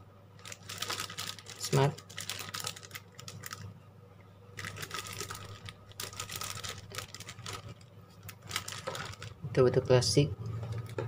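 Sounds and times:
plastic bag crinkling: 0:00.4 - 0:03.7, 0:04.6 - 0:09.5.

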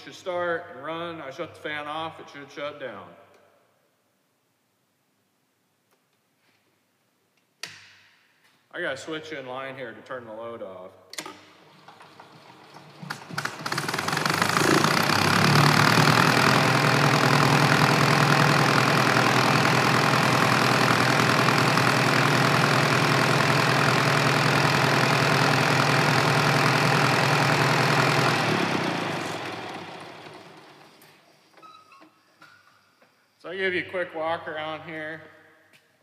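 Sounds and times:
generator engine cranking and running: 0:11.2 - 0:31.2.

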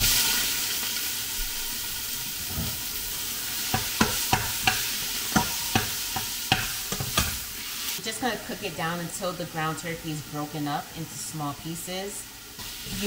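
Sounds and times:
meat sizzling in oil: 0:00.0 - 0:13.0
utensil knocking against pot: 0:03.7 - 0:07.3.

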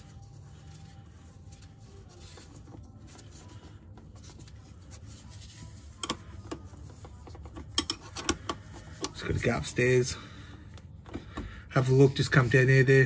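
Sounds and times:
metal scraping and rubbing: 0:00.0 - 0:09.9.

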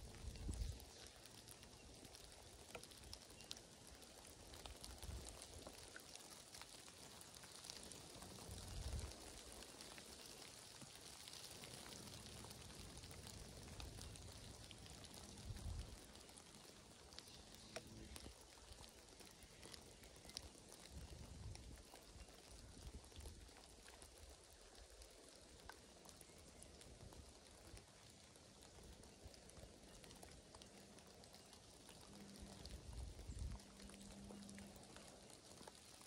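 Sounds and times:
drip ticks: 0:00.0 - 0:36.0
light rain hissing: 0:00.0 - 0:36.0.

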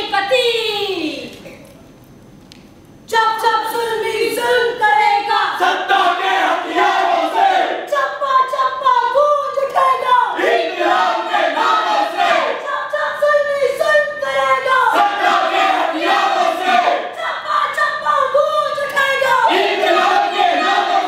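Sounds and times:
group singing loudly: 0:05.5 - 0:08.6, 0:10.3 - 0:12.6, 0:14.9 - 0:17.1, 0:19.2 - 0:21.0.

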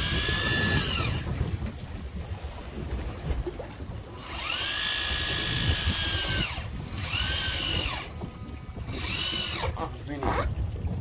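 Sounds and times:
fishing reel motor whine: 0:00.0 - 0:01.6, 0:04.2 - 0:10.5.

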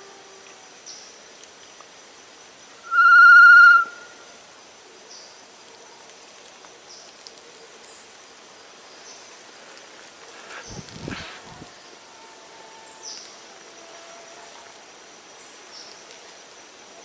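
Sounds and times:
forest background: 0:00.0 - 0:17.0
bird whistled call: 0:02.8 - 0:04.2.

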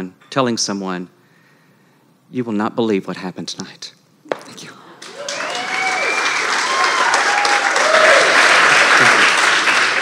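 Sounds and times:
voices cheering: 0:05.0 - 0:09.4
audience applauding: 0:05.0 - 0:10.0.

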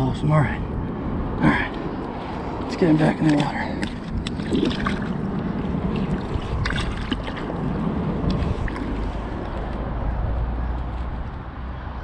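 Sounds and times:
water sloshing and splashing: 0:02.1 - 0:09.7.

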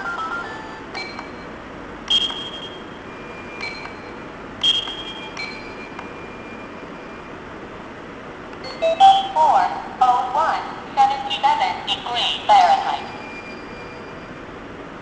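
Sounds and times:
alarm clock beeps: 0:00.0 - 0:01.5, 0:02.1 - 0:07.4, 0:08.6 - 0:09.6, 0:11.1 - 0:14.4
button clicks: 0:04.6 - 0:06.1.

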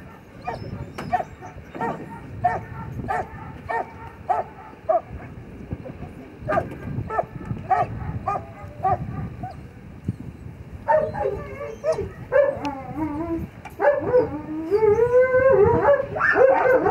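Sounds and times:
dog whining: 0:00.4 - 0:03.8, 0:10.9 - 0:16.9
dog yipping: 0:00.4 - 0:05.0, 0:06.5 - 0:09.6, 0:10.9 - 0:13.2, 0:13.8 - 0:16.9.

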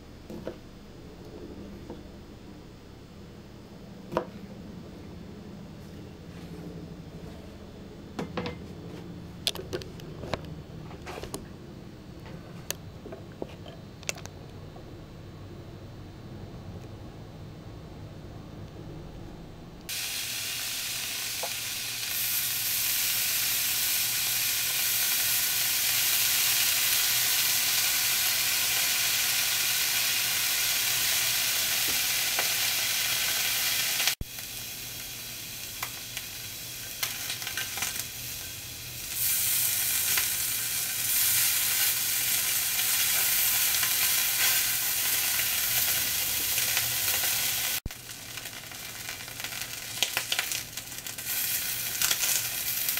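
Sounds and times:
bacon frying in a pan: 0:19.9 - 0:52.9
vegetables sizzling in a skillet: 0:19.9 - 0:52.9.

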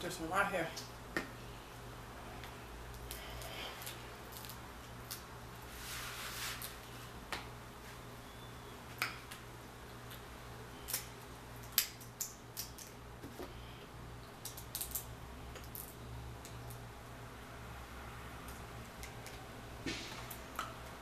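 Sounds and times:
low steady hum: 0:00.0 - 0:21.0
shell cracking: 0:10.9 - 0:13.0, 0:14.4 - 0:16.7.

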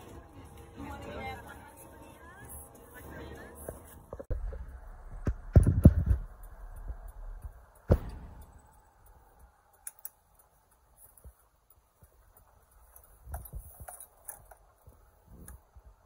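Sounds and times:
low car rumble: 0:00.0 - 0:16.0
phone knocking and bumping: 0:05.2 - 0:06.2
faint clicks: 0:06.2 - 0:14.7.

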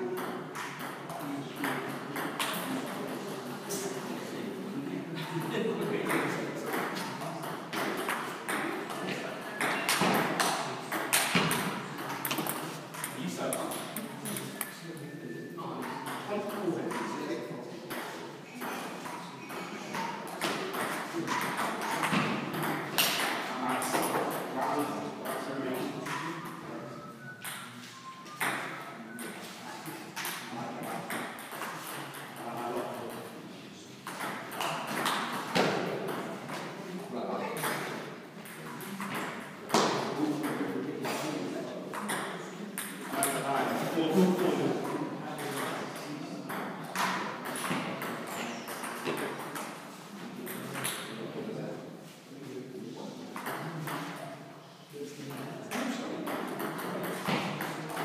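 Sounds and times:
ball bouncing on table: 0:06.0 - 0:14.6, 0:34.0 - 0:36.6, 0:46.5 - 0:49.7
ping pong ball clicking on bats: 0:56.3 - 0:58.0.

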